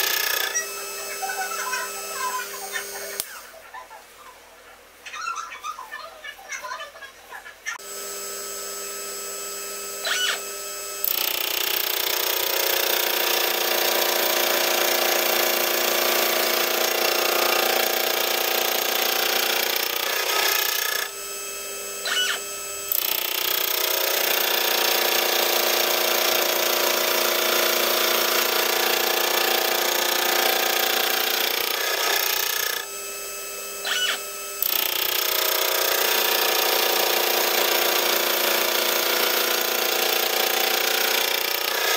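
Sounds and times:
rotary table indexing: 0.0 - 3.4, 11.0 - 21.1, 22.1 - 32.9, 33.8 - 41.9
gear cutter cutting metal: 0.0 - 3.5, 7.8 - 41.9
milling spindle humming: 0.0 - 3.6, 7.6 - 41.9.

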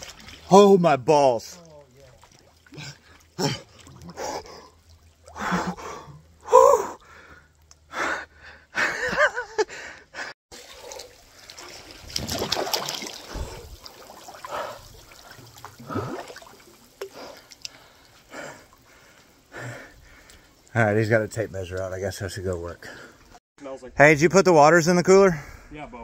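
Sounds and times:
water splashing: 0.0 - 7.6, 10.5 - 23.4.

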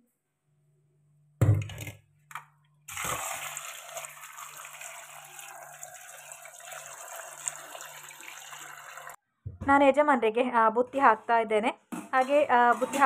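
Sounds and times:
tap water pouring into bowl: 2.9 - 9.2.

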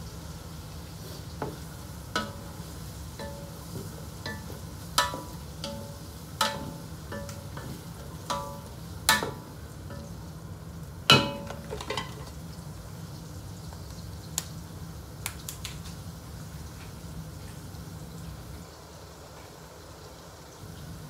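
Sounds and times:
wooden spoon clanking on metal pot: 2.2 - 2.6, 3.2 - 10.2, 11.1 - 12.3.

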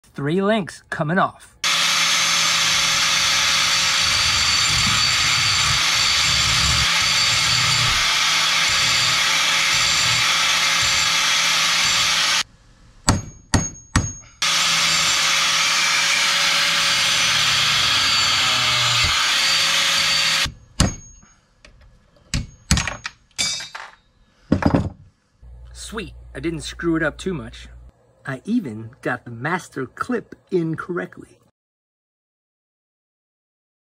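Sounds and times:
angle grinder cutting steel: 1.6 - 12.5, 14.4 - 20.5.

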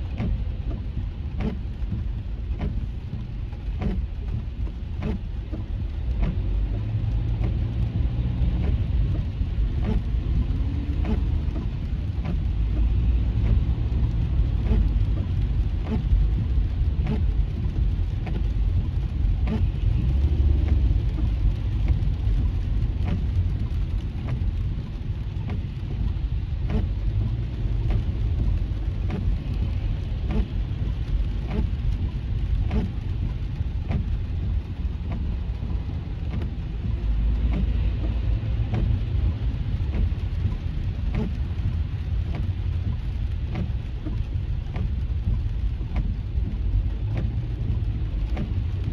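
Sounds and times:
car road and engine rumble: 0.0 - 48.9
raindrops ticking on windshield: 0.0 - 48.9.

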